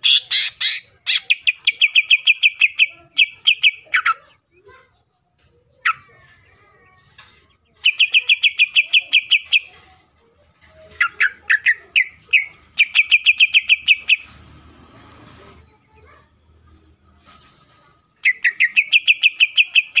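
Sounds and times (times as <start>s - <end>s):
bird singing sharp high notes: 11.2s - 14.4s, 18.2s - 20.0s.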